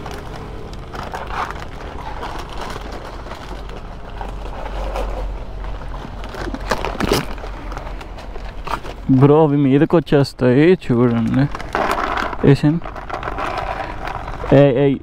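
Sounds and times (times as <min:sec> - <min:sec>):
low rumble: 0:00.0 - 0:09.2
plastic packet crinkling: 0:00.0 - 0:14.7.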